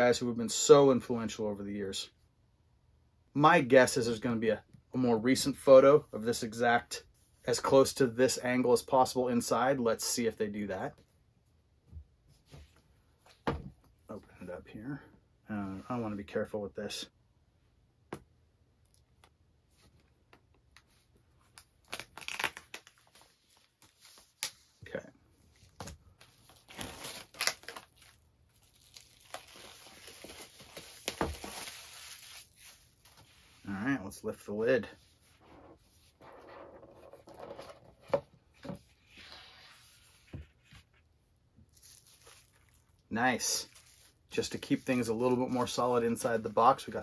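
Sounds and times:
plastic crinkling: 0:26.1 - 0:33.2, 0:41.7 - 0:46.9.

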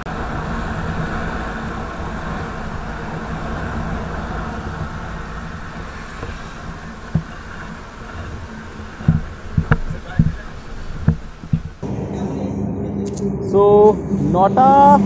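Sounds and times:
scooter engine running: 0:00.0 - 0:11.9
wind and road noise: 0:00.0 - 0:15.0.

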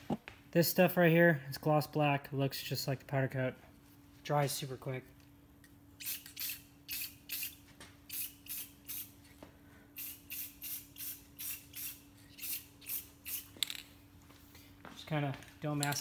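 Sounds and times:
spray can hissing: 0:06.0 - 0:09.2, 0:10.0 - 0:13.5.

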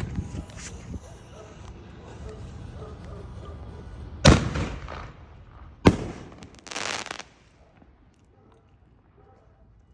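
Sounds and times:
firework crackle: 0:05.9 - 0:07.5.

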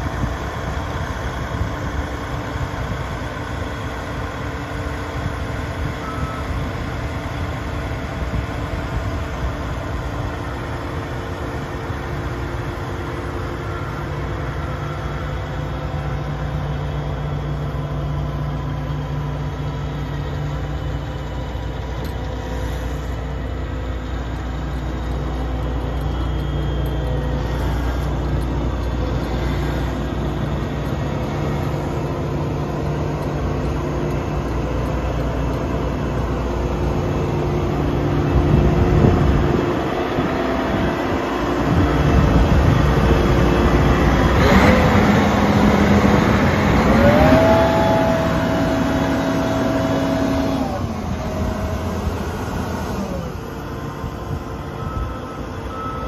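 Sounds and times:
combine diesel engine running: 0:00.0 - 0:56.0
deep strong hum: 0:21.9 - 0:54.6.

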